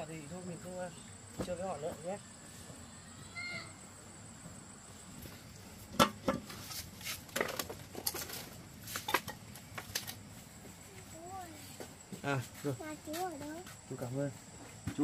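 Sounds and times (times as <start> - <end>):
sharp knocks and light clatter: 5.9 - 6.7, 14.6 - 15.0.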